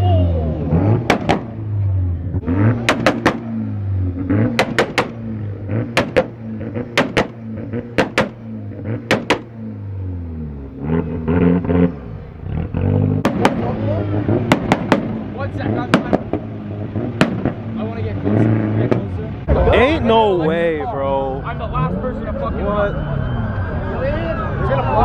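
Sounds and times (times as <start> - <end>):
car engine revving: 0.3 - 25.0
exhaust pops and bangs: 1.0 - 1.6, 2.7 - 3.7, 4.4 - 9.6, 13.2 - 17.9, 18.8 - 19.1.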